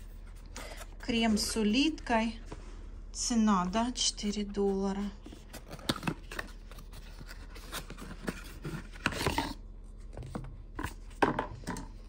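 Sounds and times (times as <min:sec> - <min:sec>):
box rustling: 0:04.2 - 0:09.6.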